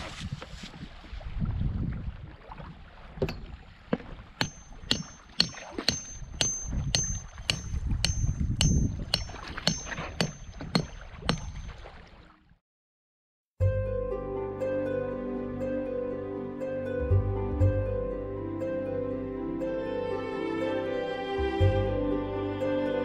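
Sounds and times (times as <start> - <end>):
wind rumble on microphone: 0.0 - 4.4, 6.2 - 11.8.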